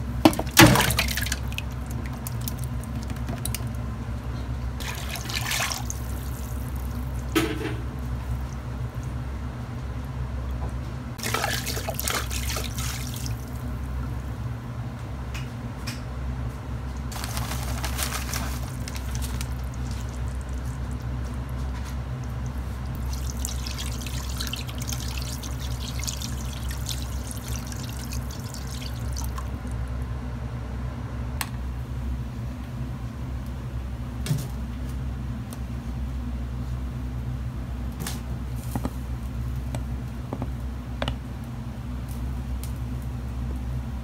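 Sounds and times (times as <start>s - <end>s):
steady low hum: 0.0s - 44.0s
broth bubbling and popping: 22.1s - 29.8s.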